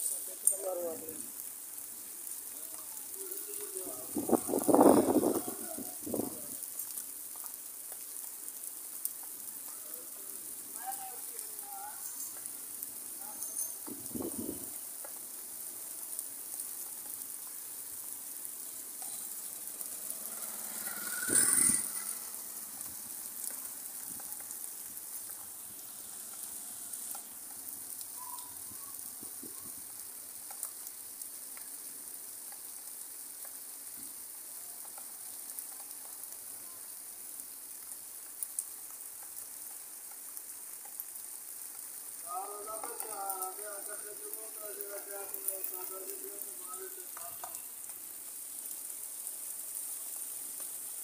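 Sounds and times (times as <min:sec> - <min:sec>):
steady rain hiss: 0:00.0 - 0:51.0.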